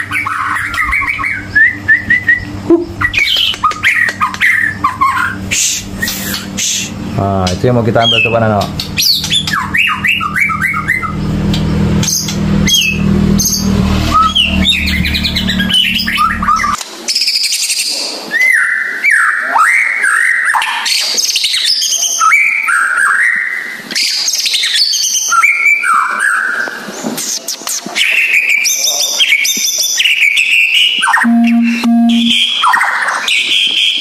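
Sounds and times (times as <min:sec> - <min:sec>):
low hum: 0:00.0 - 0:16.8, 0:31.2 - 0:32.4.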